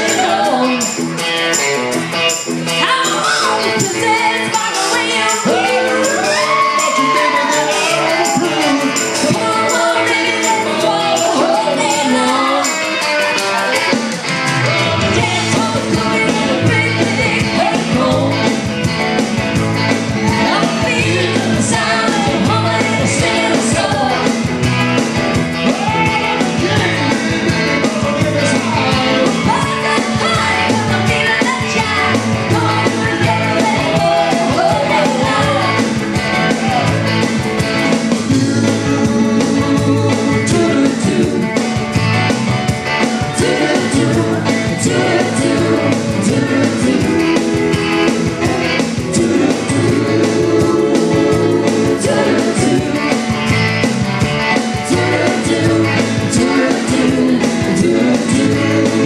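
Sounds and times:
woman singing: 0.0s - 1.0s, 2.8s - 13.0s, 15.0s - 18.6s, 20.2s - 24.4s, 25.8s - 27.2s, 29.2s - 36.0s
bass line: 0.0s - 59.0s
keyboards: 0.0s - 59.0s
live rock band playing: 0.0s - 59.0s.

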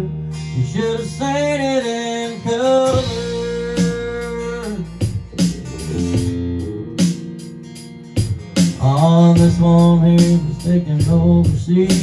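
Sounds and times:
electric bass: 0.0s - 12.0s
strummed acoustic guitar: 0.0s - 12.0s
drums keeping a beat: 2.8s - 12.0s.

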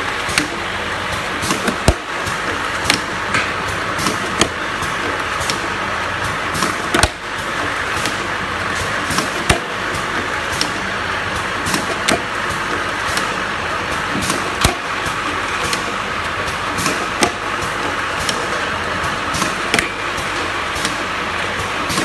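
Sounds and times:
machine whir and hiss: 0.0s - 22.0s.

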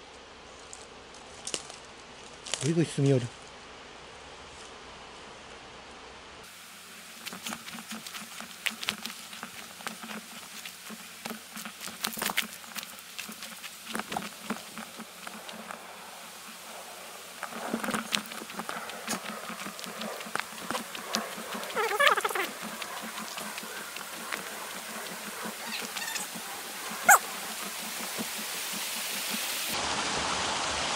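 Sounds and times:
footsteps through dry grass: 6.5s - 29.8s.

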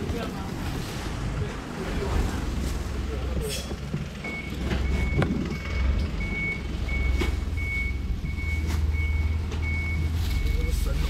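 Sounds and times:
engine idling rumble: 0.0s - 11.0s
reversing alarm beeping: 4.2s - 11.0s.

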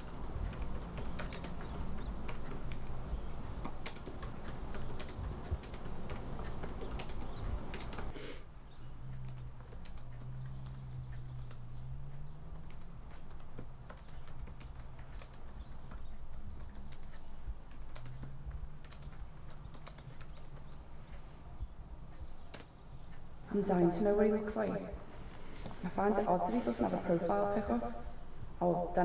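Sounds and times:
laptop keyboard typing: 0.0s - 21.2s, 22.1s - 23.1s.

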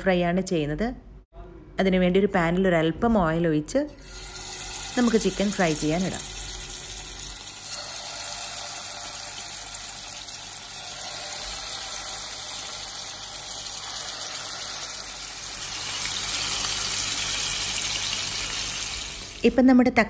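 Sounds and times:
chicken sizzling in oil: 4.0s - 19.4s.

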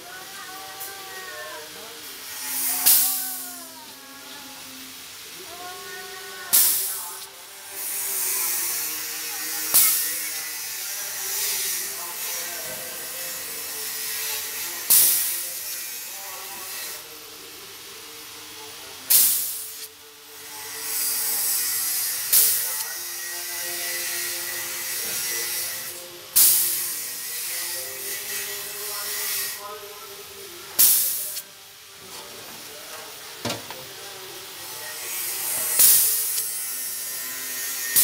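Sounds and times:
compressed air hissing: 2.1s - 3.6s, 6.5s - 10.4s, 13.3s - 15.7s, 19.1s - 20.0s, 20.8s - 27.2s, 30.8s - 31.5s, 35.2s - 38.0s.

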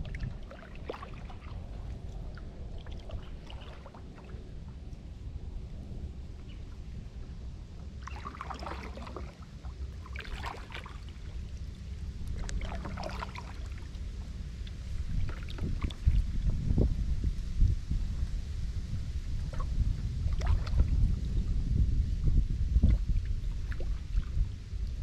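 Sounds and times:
paddle strokes splashing: 0.0s - 5.0s, 8.0s - 16.6s, 19.5s - 21.1s, 22.8s - 24.4s
wind rumble on microphone: 0.0s - 25.0s.

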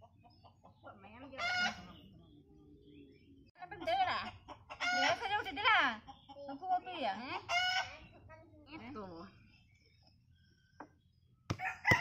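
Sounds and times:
chickens wavering calls: 0.0s - 6.5s, 7.4s - 8.2s
chicken squawk: 4.7s - 5.3s.

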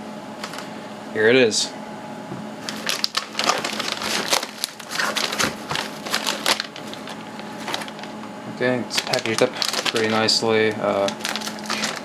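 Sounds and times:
plastic bag crinkling: 2.6s - 8.2s, 8.8s - 12.0s.

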